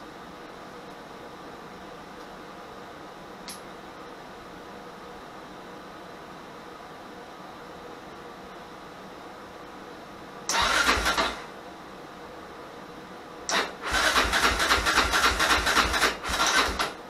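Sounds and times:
engine cranking on electric starter: 10.5 - 11.5, 13.5 - 17.0.

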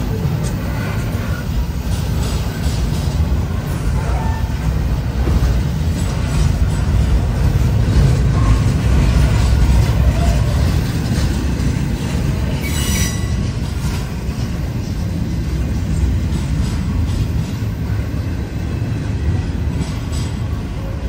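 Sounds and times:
freight train rumbling past: 0.0 - 21.0
train wheel clicks: 0.0 - 21.0
wheel squeal: 12.6 - 13.5.

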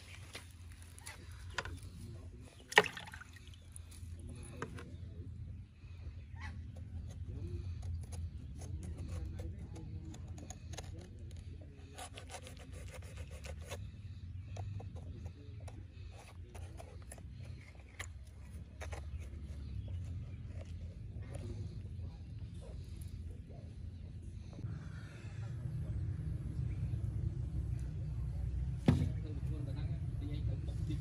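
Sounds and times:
knife scraping coconut: 6.6 - 21.6.

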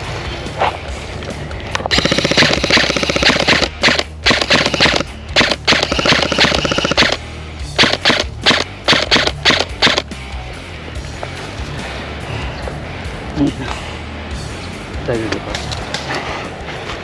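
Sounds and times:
airsoft guns firing full auto: 1.9 - 7.2, 7.8 - 10.1.

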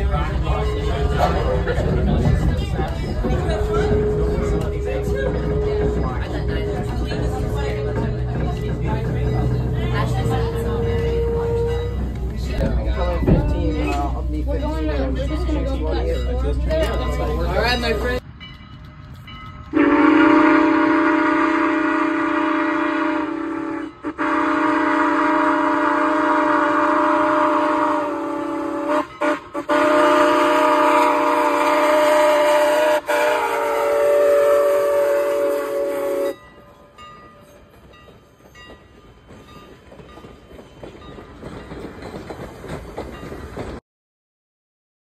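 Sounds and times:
faint passing train: 0.0 - 43.8
steam locomotive whistle blasts: 19.7 - 36.4.

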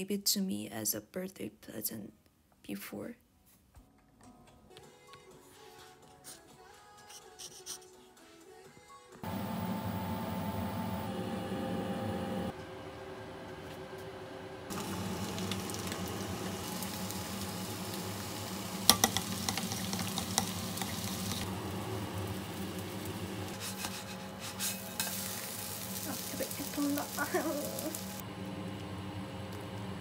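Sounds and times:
food sizzling in a frying pan: 14.7 - 28.2.

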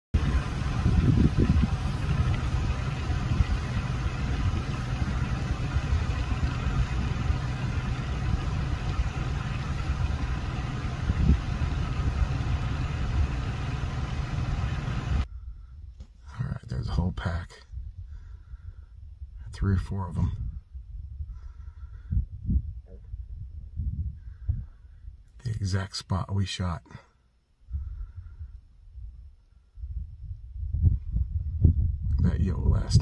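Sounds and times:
vehicle engine idling: 0.2 - 15.7.

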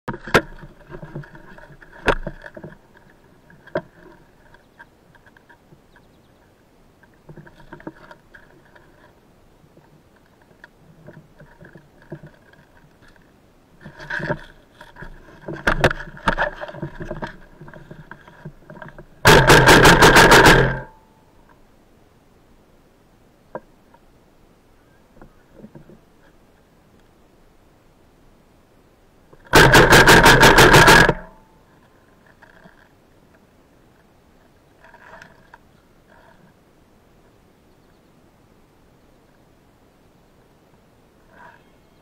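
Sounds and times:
scattered clicks and knocks: 0.1 - 6.1, 9.8 - 21.0, 29.3 - 31.4
airsoft gun rapid firing: 19.3 - 20.9, 29.5 - 31.3.

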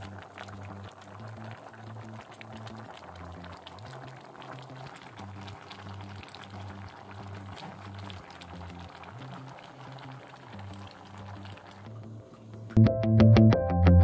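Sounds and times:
broth bubbling in a pot: 0.0 - 12.8
low background music: 11.9 - 14.0.

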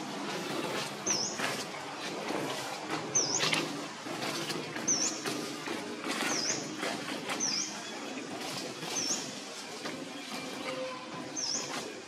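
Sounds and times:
bird calling: 10.2 - 11.8.

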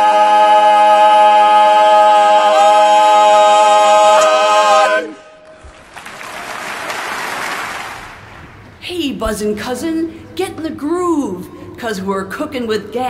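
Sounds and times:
male quartet singing a cappella: 0.0 - 5.4
audience applauding: 5.6 - 8.6.

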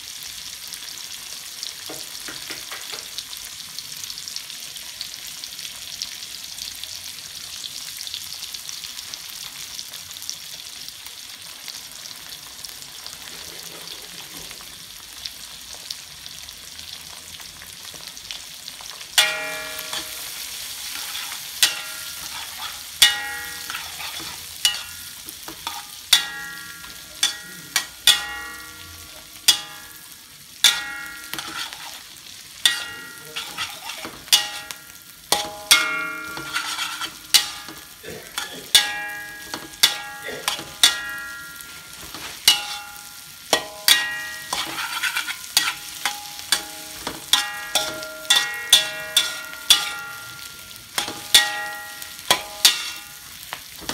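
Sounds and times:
food sizzling: 0.0 - 53.9
metal spatula clanging on wok: 19.2 - 53.9.

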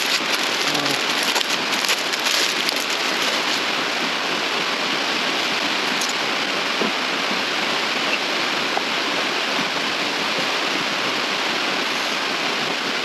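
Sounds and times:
faint clicks and rustles: 0.0 - 4.0
heavy rain on roof: 0.0 - 13.0.

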